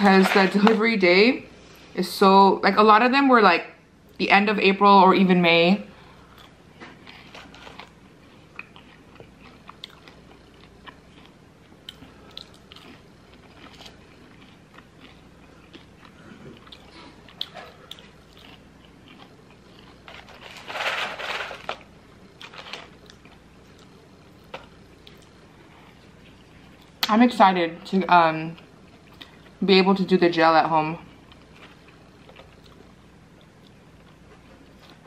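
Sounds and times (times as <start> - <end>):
chewing crunchy fries: 6.1 - 27.1, 31.0 - 35.0.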